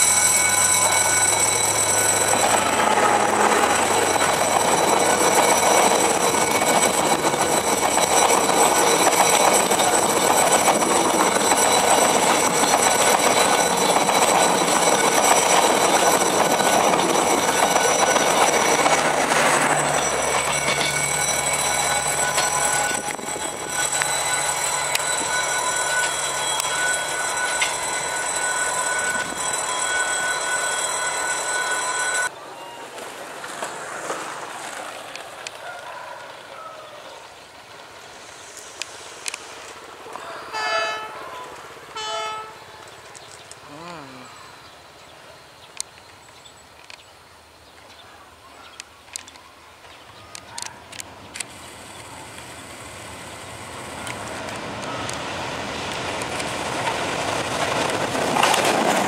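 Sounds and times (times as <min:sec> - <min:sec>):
distant diesel locomotive rumble: 0:00.0 - 0:35.0
train wheels rushing on rail: 0:00.0 - 0:36.4, 0:50.6 - 0:59.0.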